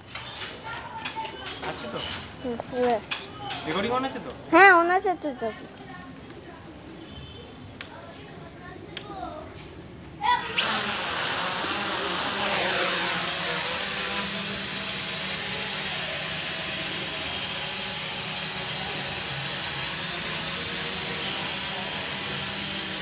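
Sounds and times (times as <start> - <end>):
quadcopter motors whining: 10.4 - 23.0.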